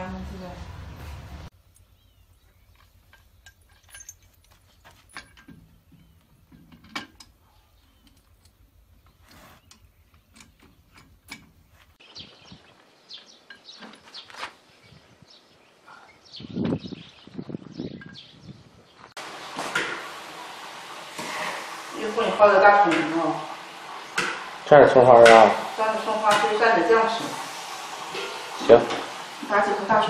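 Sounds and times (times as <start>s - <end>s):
hand tools clinking on steel: 1.7s - 11.6s.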